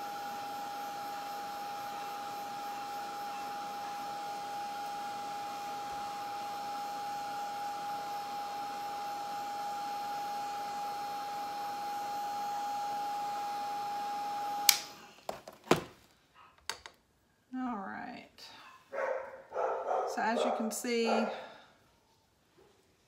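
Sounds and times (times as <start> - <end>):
heat gun blowing with high whine: 0.0 - 15.1
heat gun switch click: 14.6 - 14.9.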